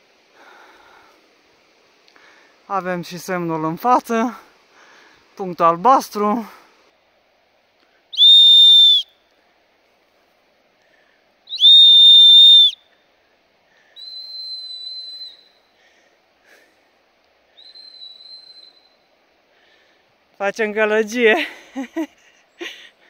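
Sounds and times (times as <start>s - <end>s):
shrill whistle blasts: 8.1s - 9.2s, 11.5s - 12.8s, 14.0s - 15.7s, 17.6s - 19.1s.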